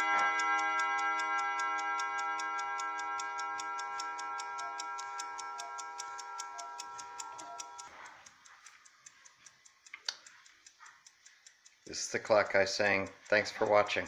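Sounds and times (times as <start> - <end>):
clock chime rods ringing: 0.0 - 7.8
clock ticking: 0.0 - 14.0.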